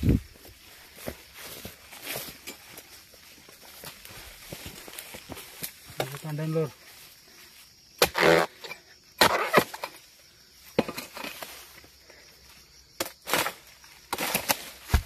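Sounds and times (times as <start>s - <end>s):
blade hacking palm stalk: 8.0s - 8.6s, 9.2s - 9.9s, 13.0s - 15.0s.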